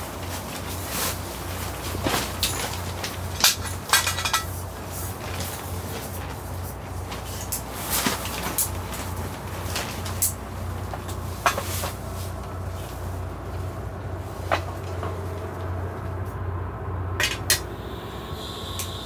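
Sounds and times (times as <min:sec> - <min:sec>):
steady low rumble: 0:00.0 - 0:19.0
faint high burner tone: 0:17.5 - 0:19.0.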